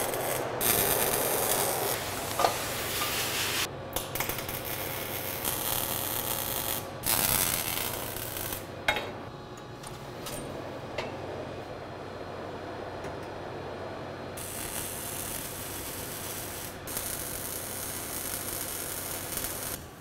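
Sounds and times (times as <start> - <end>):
welding arc buzzing: 0.0 - 8.7, 14.4 - 20.0.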